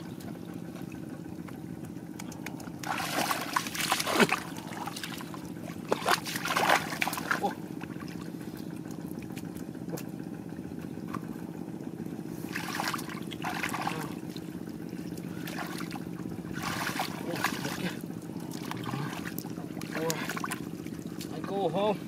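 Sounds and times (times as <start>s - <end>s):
tractor engine running: 0.0s - 22.0s
water sloshing and splashing: 0.0s - 22.0s.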